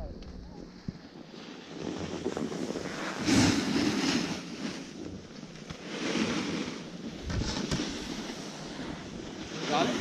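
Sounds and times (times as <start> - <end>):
board scraping over packed snow: 0.7 - 10.0
wind on microphone: 6.4 - 9.8.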